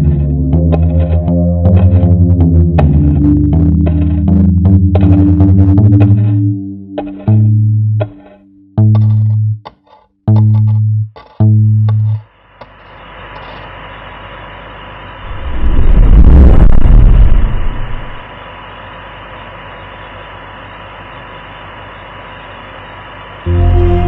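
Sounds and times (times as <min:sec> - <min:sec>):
steady hissing ambience: 0:11.9 - 0:24.0
loud deep rumble: 0:15.3 - 0:18.2.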